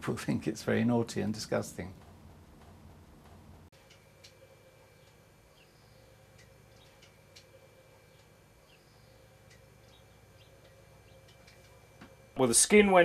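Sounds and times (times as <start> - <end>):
faint hum: 0.0 - 13.0
faint high ticks and chirps: 2.0 - 12.4.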